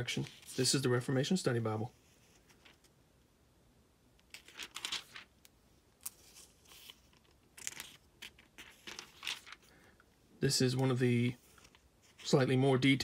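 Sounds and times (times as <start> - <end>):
thin paper pages rustling: 0.1 - 0.8, 4.3 - 5.4, 6.0 - 9.8, 11.4 - 12.4.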